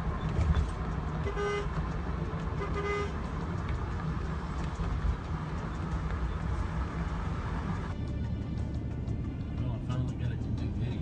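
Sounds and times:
car driving rumble: 0.0s - 11.0s
car horn toots: 1.2s - 1.8s, 2.6s - 3.2s.

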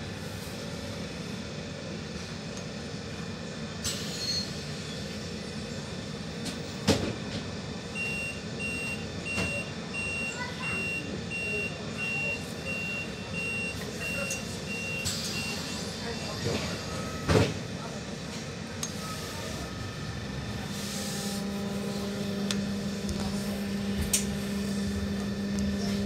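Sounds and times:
tram running noise: 0.0s - 26.0s
high electronic warning beeps: 8.0s - 17.3s.

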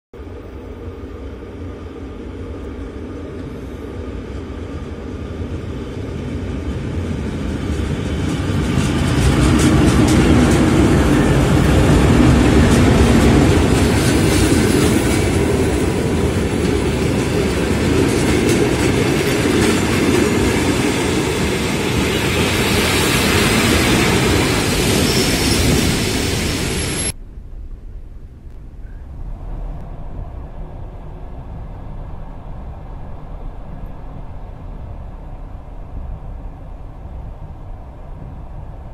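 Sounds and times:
train wheels clattering on rails: 6.6s - 27.1s.

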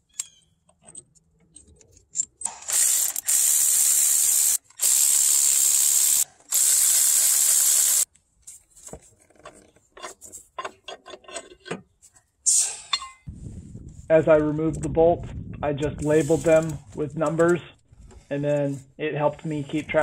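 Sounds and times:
electric ratchet spinning bolts: 2.4s - 8.1s.

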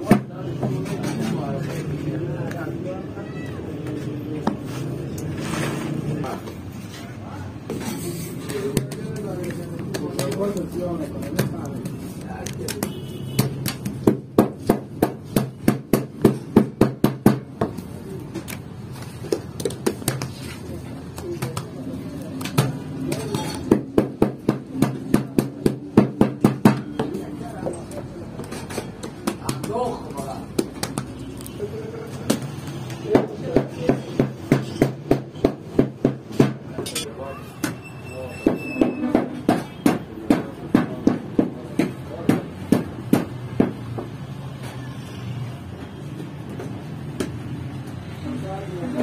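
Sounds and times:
hands slapping dough: 8.4s - 17.8s, 18.4s - 26.9s, 29.0s - 31.2s.

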